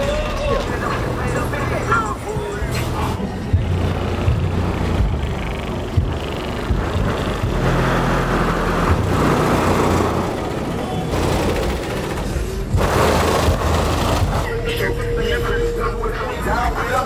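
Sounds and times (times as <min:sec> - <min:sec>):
cars running: 0:00.0 - 0:17.0
loud music with bass thumps: 0:03.4 - 0:09.2, 0:12.7 - 0:14.4.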